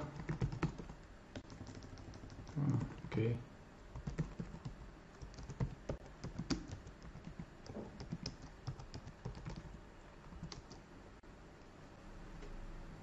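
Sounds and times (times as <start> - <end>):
typing on computer keyboard: 0.0 - 3.1, 4.0 - 10.8.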